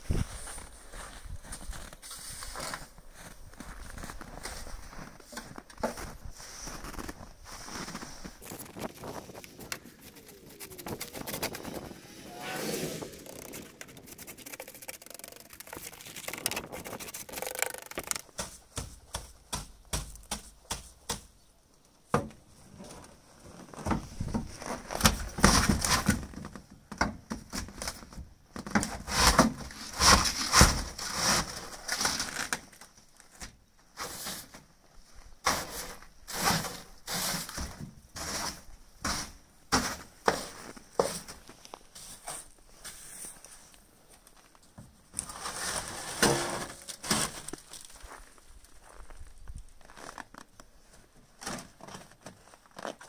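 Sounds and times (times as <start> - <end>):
snow brush scraping snow: 6.3 - 15.0, 38.2 - 41.3.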